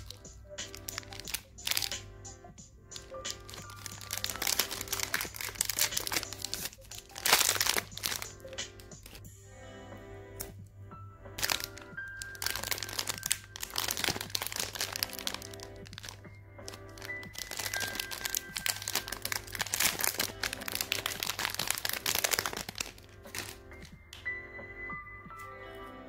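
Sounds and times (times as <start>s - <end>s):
foil wrapper tearing: 0.0s - 2.0s, 3.0s - 9.2s, 11.4s - 23.9s
snack wrappers crinkling: 0.0s - 2.1s, 2.9s - 9.3s, 11.4s - 24.3s
background music: 0.0s - 26.0s.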